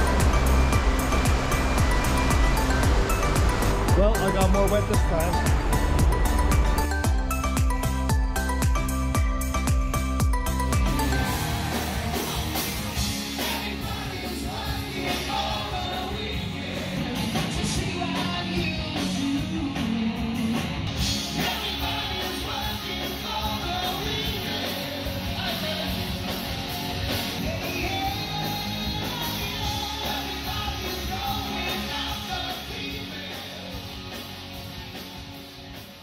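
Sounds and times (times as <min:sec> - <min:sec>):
live rock band playing: 0:00.0 - 0:36.0
person singing: 0:27.4 - 0:33.8.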